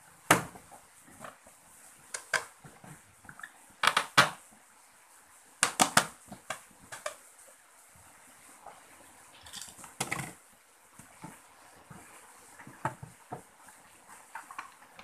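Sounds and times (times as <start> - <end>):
hard plastic parts clicking and knocking: 3.8 - 4.4, 5.6 - 7.2, 9.4 - 10.4.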